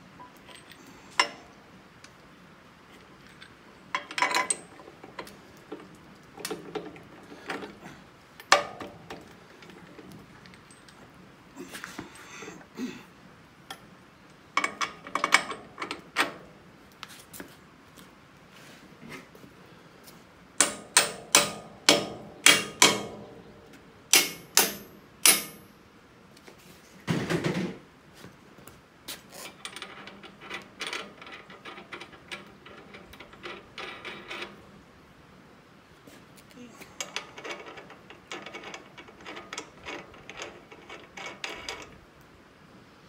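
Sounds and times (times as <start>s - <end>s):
hammer striking metal: 20.6s - 23.3s, 24.1s - 25.7s.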